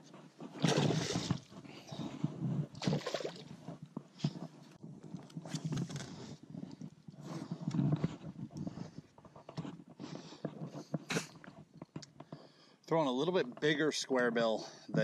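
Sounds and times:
fish splashing at water surface: 0.6s - 1.4s.

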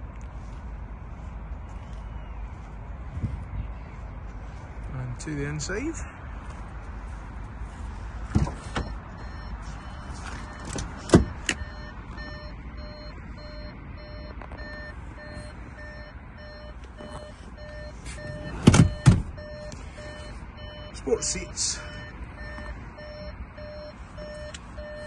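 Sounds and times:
car door clunks: 8.3s - 9.0s, 10.6s - 11.7s, 17.0s - 19.7s
car warning chime beeping: 8.6s - 25.0s.

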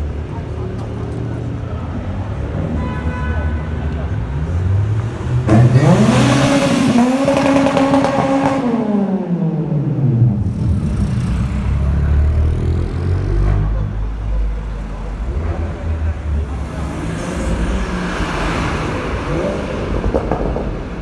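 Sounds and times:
traffic engine rumble: 0.0s - 21.0s
car accelerating hard: 5.0s - 13.8s.

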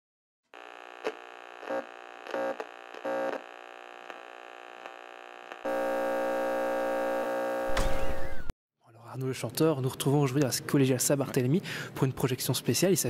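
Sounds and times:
electronic drone chord: 5.7s - 8.2s.

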